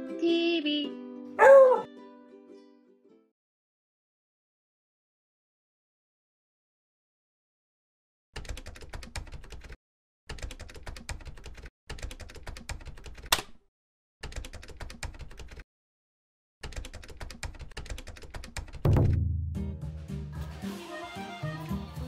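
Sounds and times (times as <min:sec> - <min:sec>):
rapid keyboard typing: 0:08.4 - 0:13.3, 0:14.2 - 0:15.6, 0:16.6 - 0:18.8.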